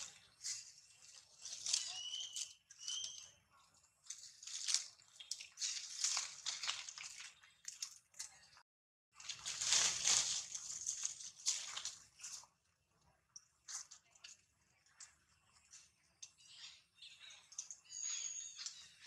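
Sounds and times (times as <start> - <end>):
leaves and twigs rustling: 0.0 - 8.3, 9.2 - 12.6.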